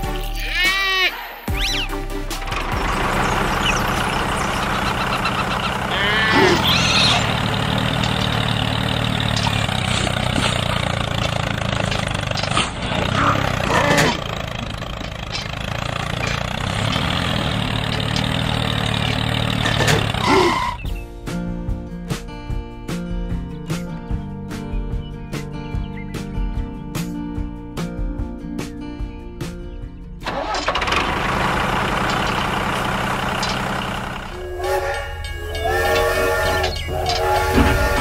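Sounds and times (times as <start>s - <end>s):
diesel tractor engine running: 1.4s - 21.0s, 30.2s - 38.0s.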